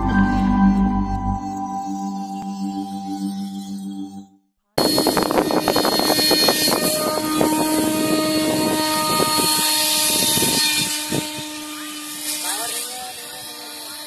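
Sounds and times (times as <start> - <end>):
wind buffeting microphone: 4.8 - 11.7
model jet motor whining: 4.8 - 14.0.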